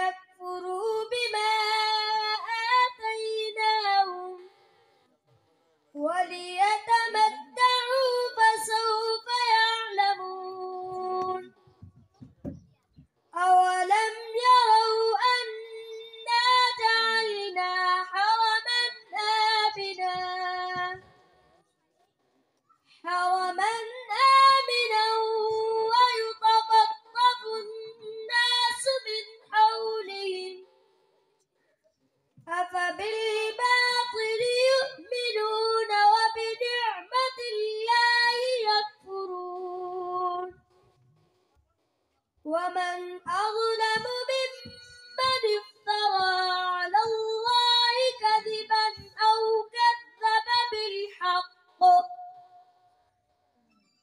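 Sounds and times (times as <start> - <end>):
boy chanting recitation: 0.0 - 4.5, 6.0 - 21.1, 23.0 - 30.6, 32.5 - 40.6, 42.5 - 52.4
boy chanting into a microphone: 32.5 - 40.5, 42.5 - 52.3.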